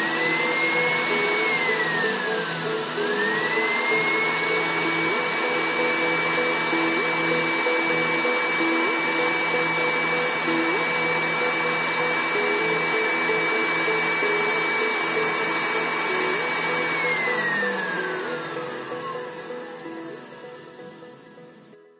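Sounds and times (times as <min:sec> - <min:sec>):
blender motor whining: 0:00.0 - 0:21.8.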